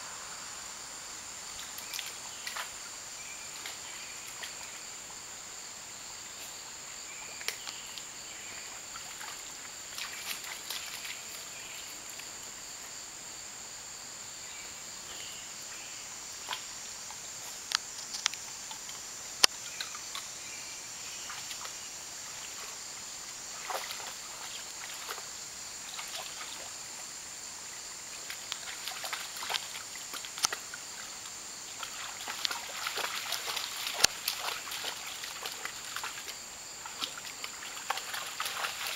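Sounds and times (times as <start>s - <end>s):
insects droning: 0.0s - 38.9s
dog splashing in water: 23.5s - 25.3s, 28.3s - 30.6s, 31.8s - 38.9s.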